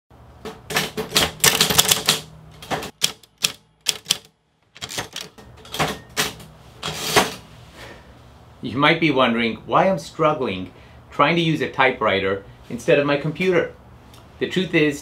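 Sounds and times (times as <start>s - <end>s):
typewriter keys striking: 0.6s - 6.4s.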